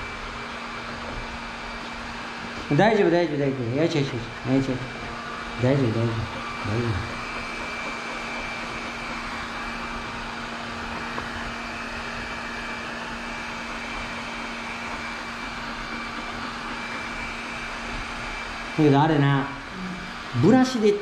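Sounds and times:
robot vacuum cleaner whirring: 0:00.0 - 0:21.0.

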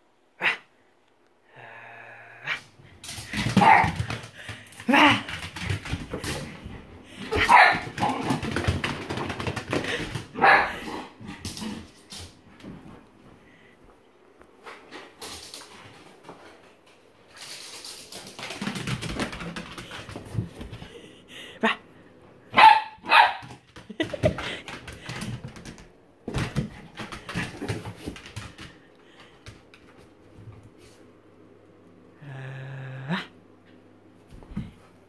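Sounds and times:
small dog barking: 0:07.4 - 0:07.9, 0:10.4 - 0:10.7, 0:22.5 - 0:23.5.

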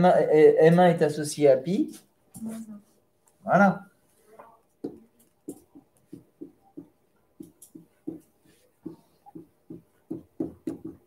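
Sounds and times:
pen writing on board: 0:04.9 - 0:11.0.

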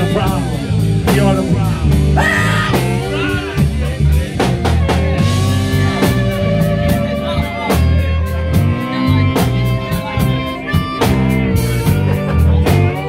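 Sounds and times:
blues harmonica: 0:00.0 - 0:13.0
drum kit: 0:00.0 - 0:13.0
electric guitar: 0:00.0 - 0:13.0
person singing: 0:01.4 - 0:06.2.

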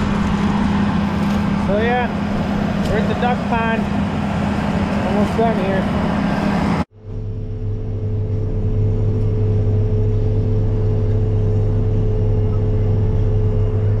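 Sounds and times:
tractor engine drone: 0:00.0 - 0:14.0.

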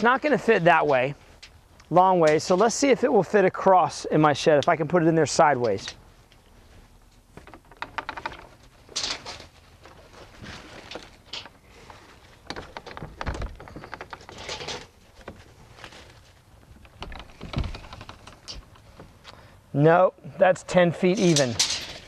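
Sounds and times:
rustling and handling noises: 0:05.6 - 0:19.5.

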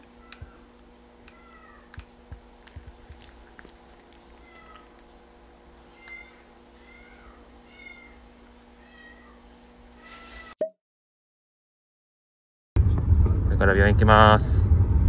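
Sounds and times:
low electrical hum: 0:00.0 - 0:10.5
cat mewing: 0:00.2 - 0:02.0, 0:04.2 - 0:05.0, 0:05.8 - 0:10.6.

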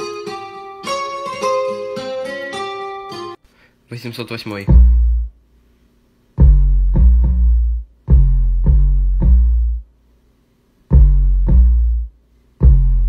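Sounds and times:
deep bass notes: 0:04.7 - 0:05.4, 0:06.4 - 0:09.9, 0:10.9 - 0:13.0.

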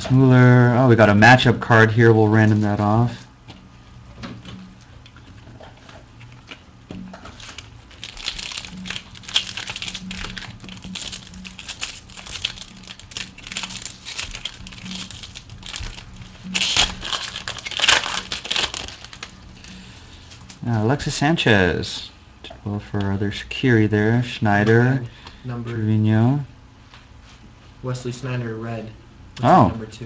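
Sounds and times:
foil pack crinkling and tearing: 0:06.3 - 0:20.6.

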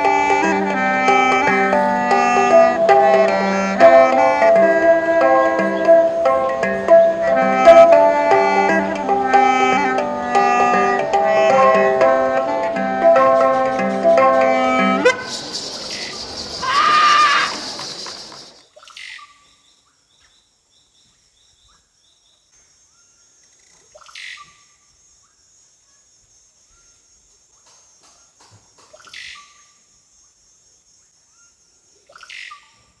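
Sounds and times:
music: 0:00.0 - 0:15.3
high insect drone: 0:00.0 - 0:18.6
bird call rasp and whistle: 0:15.0 - 0:19.4.

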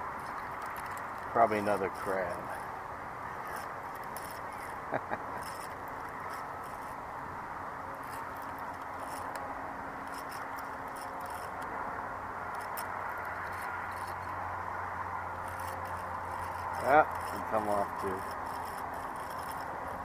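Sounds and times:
fishing reel cranking: 0:00.2 - 0:02.7, 0:03.3 - 0:07.0, 0:08.0 - 0:09.4, 0:10.0 - 0:11.7, 0:12.5 - 0:14.4, 0:15.4 - 0:20.0.

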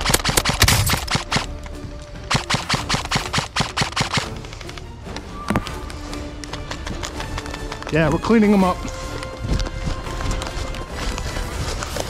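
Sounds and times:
airsoft rifles firing bursts: 0:00.0 - 0:01.5, 0:02.3 - 0:04.3.

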